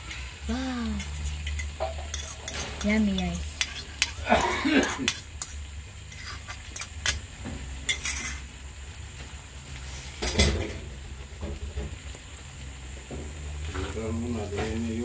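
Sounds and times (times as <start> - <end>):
metal utensils clinking on plate: 1.0 - 7.2, 7.9 - 8.4.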